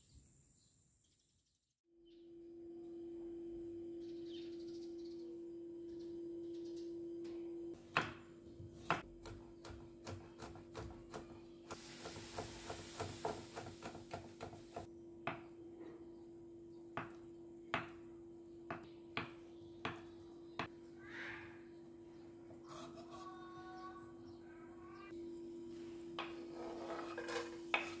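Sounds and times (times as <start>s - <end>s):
knife chopping on wooden board: 7.8s - 11.4s
steady hiss: 11.7s - 14.9s.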